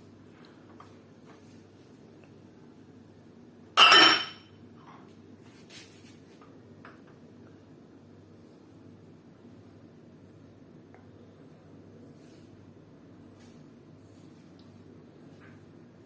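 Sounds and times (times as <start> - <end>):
drinking glasses clinking: 3.8 - 4.5.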